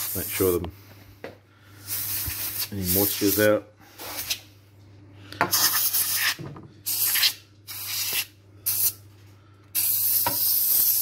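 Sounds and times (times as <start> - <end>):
compressed air hissing: 0.0 - 0.6, 1.6 - 4.4, 5.5 - 9.0, 9.7 - 11.0.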